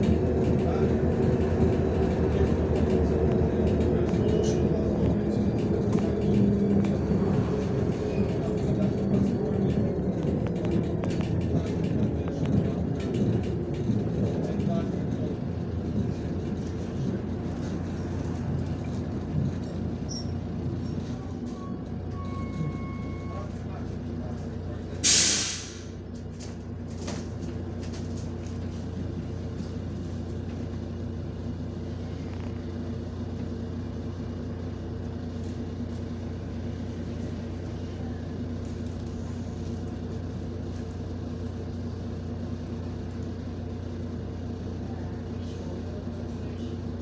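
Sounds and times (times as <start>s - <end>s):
bus engine drone: 0.0s - 47.0s
road noise: 0.0s - 47.0s
compressed air hiss: 25.0s - 25.8s.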